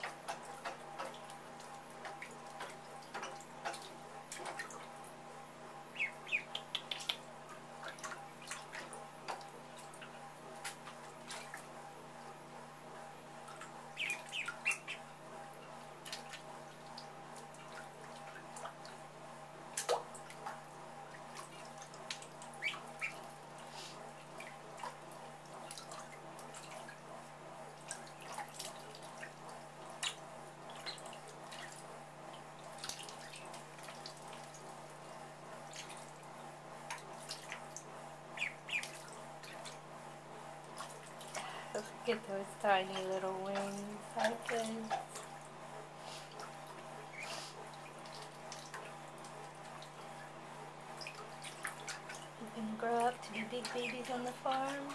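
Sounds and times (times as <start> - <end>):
ducklings splashing in water: 0.0 - 5.2, 5.8 - 11.9, 13.3 - 54.9
steady low hum: 0.0 - 54.9
duckling peeps: 5.9 - 7.3, 13.9 - 15.1, 22.5 - 23.3, 38.3 - 39.7, 47.1 - 47.6.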